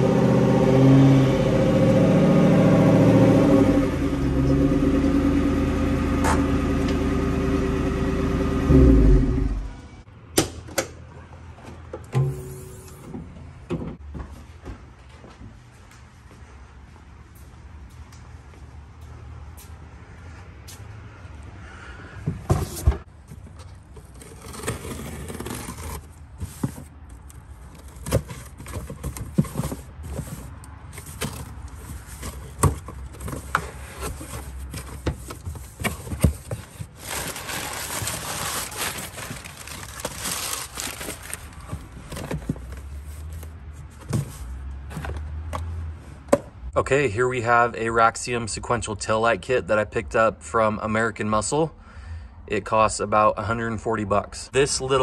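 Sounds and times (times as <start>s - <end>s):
cardboard flaps rustling: 22.5s - 45.2s
packing tape tearing: 36.8s - 41.7s.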